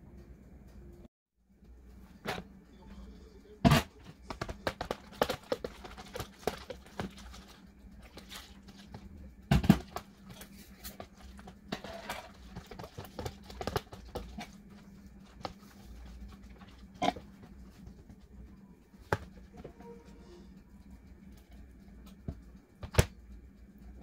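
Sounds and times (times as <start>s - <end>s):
whisk scraping plastic container: 4.0s - 9.1s, 9.8s - 18.3s.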